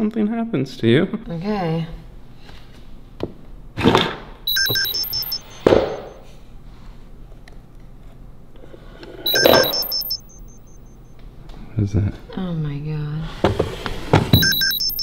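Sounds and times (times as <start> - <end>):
high electronic beeps: 4.5 - 6.2, 9.3 - 11.0, 14.4 - 15.0.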